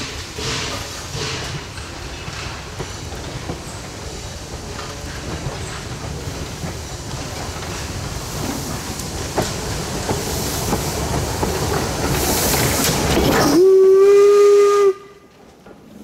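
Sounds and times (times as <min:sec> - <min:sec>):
wheels clicking over rail joints: 0:00.0 - 0:13.7
steam hiss: 0:00.0 - 0:15.3
steam train rolling past: 0:00.0 - 0:16.0.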